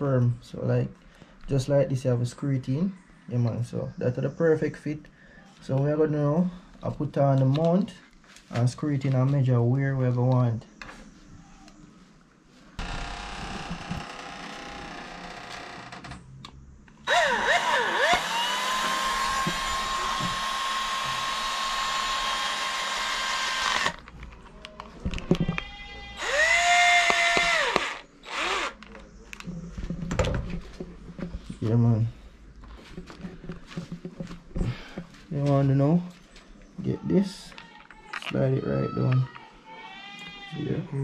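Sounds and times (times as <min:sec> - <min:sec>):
cordless drill motor whine: 0:17.0 - 0:24.0, 0:26.2 - 0:28.9.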